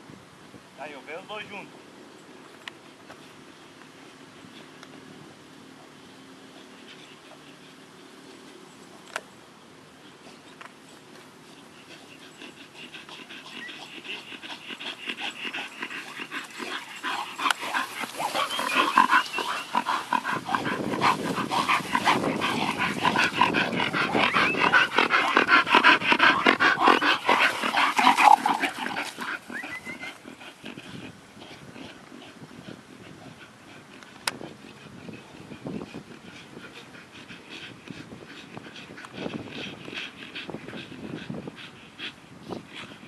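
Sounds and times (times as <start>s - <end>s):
dogs vocalising while play-fighting: 11.1s - 43.0s.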